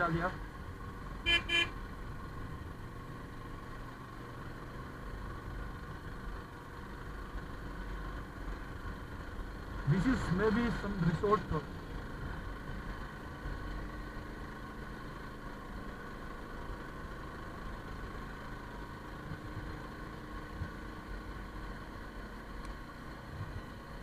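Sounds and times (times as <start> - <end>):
road and wind rumble: 0.0 - 24.0.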